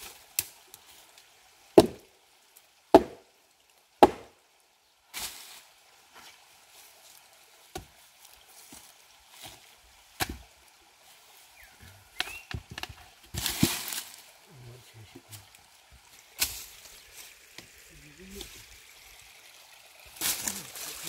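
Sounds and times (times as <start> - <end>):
heavy blows on wood: 1.8 - 2.0, 3.0 - 3.2, 4.0 - 4.3.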